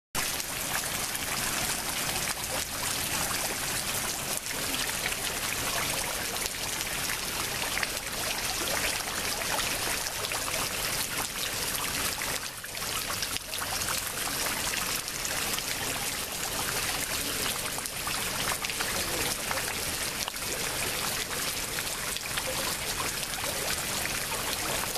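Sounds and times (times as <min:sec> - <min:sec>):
floodwater running and trickling: 0:00.2 - 0:24.9
small water splashes: 0:00.2 - 0:24.9.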